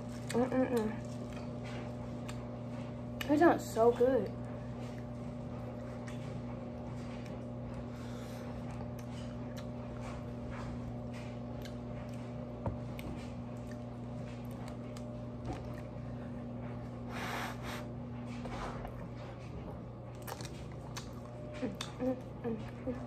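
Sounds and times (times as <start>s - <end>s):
steady low hum: 0.0s - 23.0s
person chewing food: 4.8s - 16.9s, 20.1s - 22.8s.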